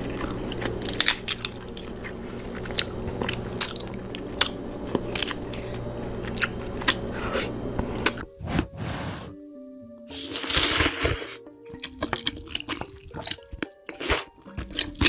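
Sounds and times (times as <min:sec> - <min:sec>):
chewing and wet mouth sounds: 0:00.0 - 0:08.2, 0:10.1 - 0:15.0
steady low hum: 0:00.0 - 0:09.5.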